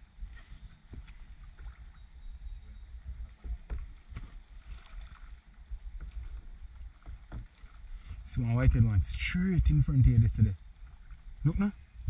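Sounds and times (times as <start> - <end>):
paddle splashing in water: 0.0 - 9.4
paddle knocks: 3.3 - 5.3, 5.9 - 8.2.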